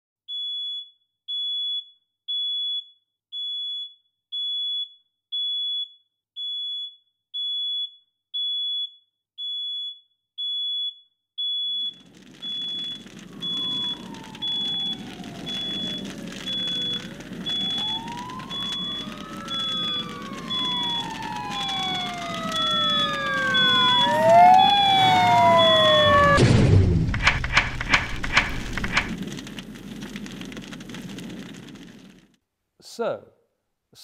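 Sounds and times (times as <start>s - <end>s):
smoke alarm beeping: 0.3s - 26.4s
siren wailing: 11.9s - 29.4s.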